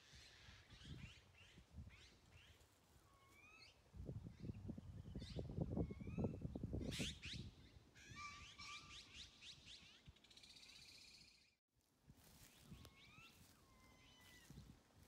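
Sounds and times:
magpies calling: 0:12.8 - 0:14.6.

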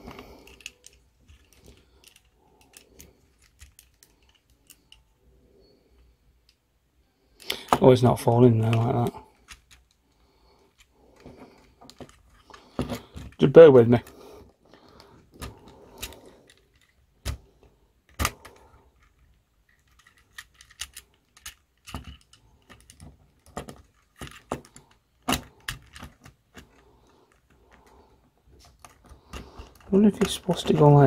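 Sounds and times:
plastic toy parts clicking: 0:00.4 - 0:05.1, 0:08.6 - 0:10.0, 0:15.0 - 0:17.4, 0:18.1 - 0:28.0.

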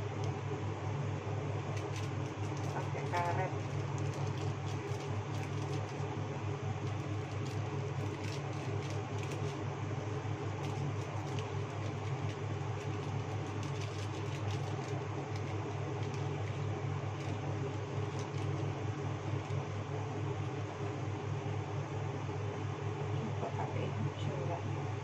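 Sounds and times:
low mechanical hum: 0:00.0 - 0:25.0.

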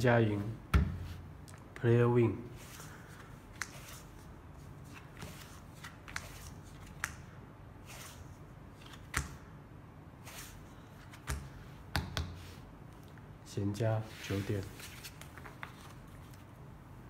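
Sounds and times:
playing cards snapping: 0:05.2 - 0:07.2.

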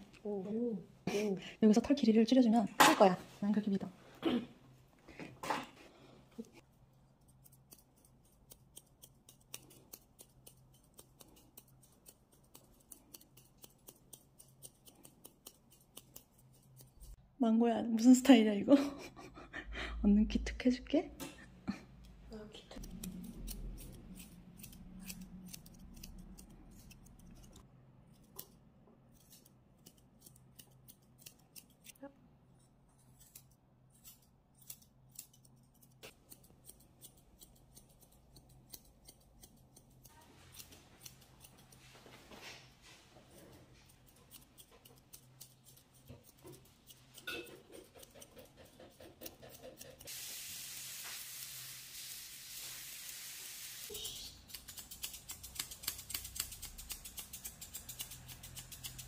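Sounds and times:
scissors snipping: 0:07.2 - 0:17.2, 0:22.8 - 0:41.8, 0:43.2 - 0:50.1, 0:54.2 - 0:59.0
steady hiss: 0:50.1 - 0:54.0.

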